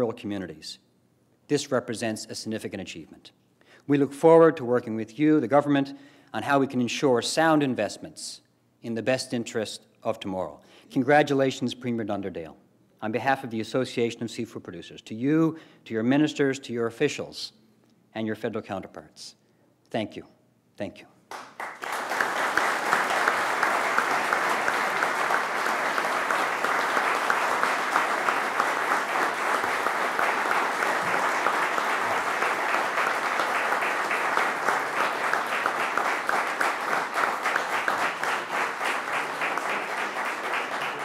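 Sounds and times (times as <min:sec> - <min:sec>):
audience applauding: 0:21.3 - 0:41.0.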